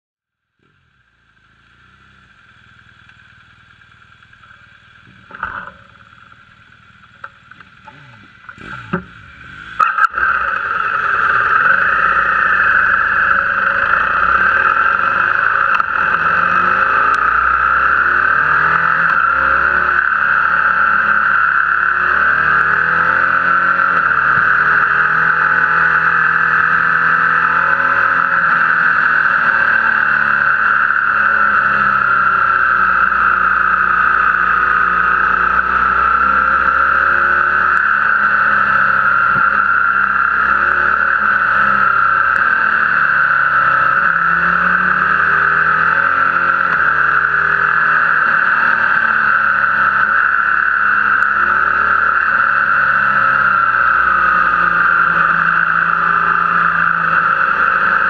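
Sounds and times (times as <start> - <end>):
motorcycle engine revving: 0.5 - 58.0.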